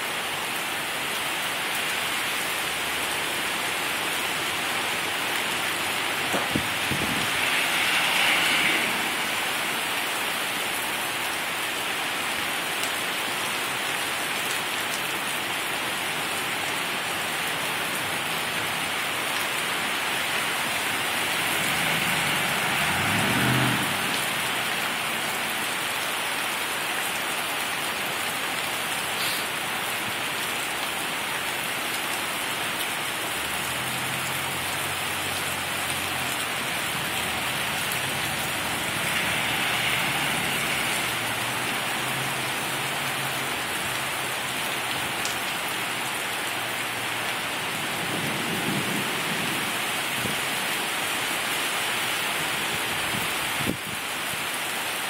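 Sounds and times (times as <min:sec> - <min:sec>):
heavy rain pouring: 0:00.0 - 0:55.0
thunder rumbling: 0:06.1 - 0:10.0.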